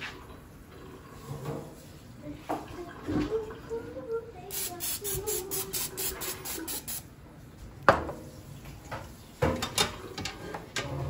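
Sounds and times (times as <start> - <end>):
aerosol spray can hissing: 4.5 - 7.0.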